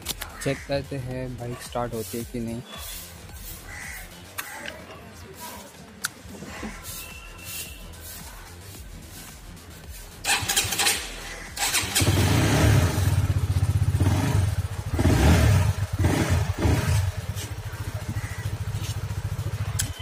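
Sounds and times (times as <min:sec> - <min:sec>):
motorcycle engine revving and idling: 0:09.8 - 0:20.0
electric starter cranking: 0:10.2 - 0:12.5.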